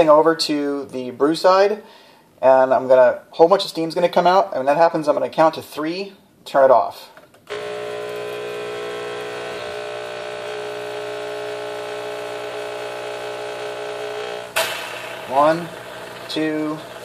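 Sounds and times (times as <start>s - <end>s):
espresso machine pump buzzing: 7.5s - 17.0s
steam and hot water hissing: 13.8s - 17.0s.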